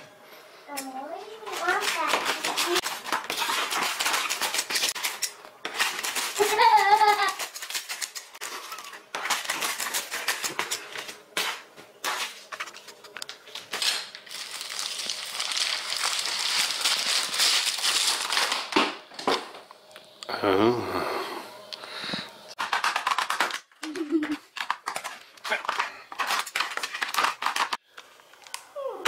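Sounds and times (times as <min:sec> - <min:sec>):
plastic crinkling and tearing: 0:01.4 - 0:18.9, 0:22.6 - 0:27.8
scissors snipping plastic: 0:01.5 - 0:12.2.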